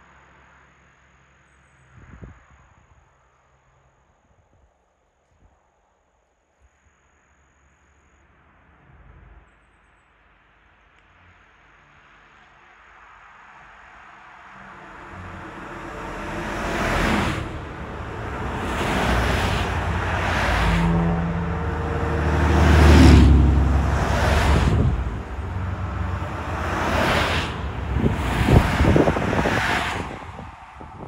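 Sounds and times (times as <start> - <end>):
traffic passing on a road: 0.0 - 4.6, 8.2 - 31.0
vehicle low engine drone: 8.2 - 31.0.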